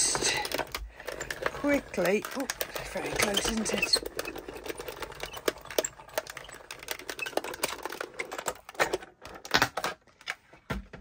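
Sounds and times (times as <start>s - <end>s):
die-cutting machine rapid clicking: 0.0s - 8.7s.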